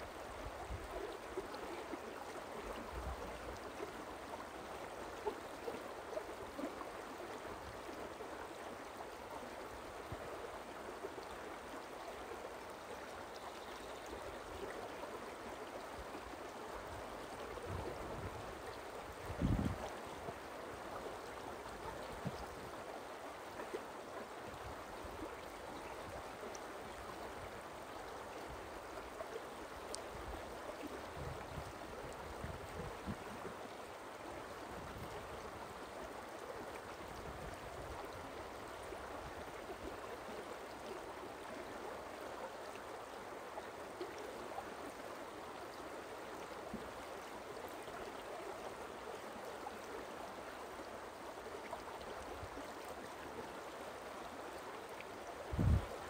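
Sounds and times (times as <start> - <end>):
forest stream running: 0.0 - 56.0.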